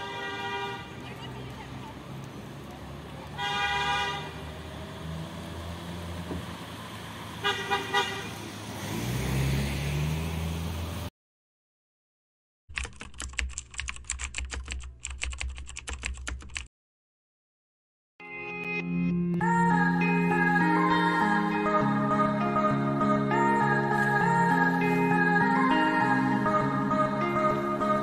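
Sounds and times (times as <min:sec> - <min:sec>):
car horn honking: 0:00.0 - 0:01.0, 0:03.4 - 0:04.4, 0:07.4 - 0:08.4
road traffic: 0:00.0 - 0:11.1, 0:19.4 - 0:28.0
engine rising in pitch: 0:08.7 - 0:11.1
keyboard typing clicks: 0:12.7 - 0:16.7.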